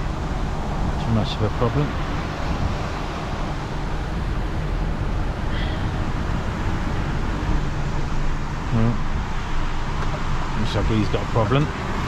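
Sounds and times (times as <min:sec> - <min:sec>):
truck diesel engine rumble: 0:00.0 - 0:12.0.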